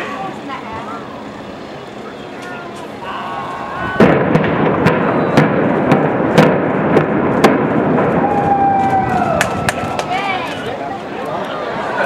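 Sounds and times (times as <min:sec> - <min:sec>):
continuous blast noise: 0:00.0 - 0:12.0
explosive bangs: 0:03.8 - 0:09.9.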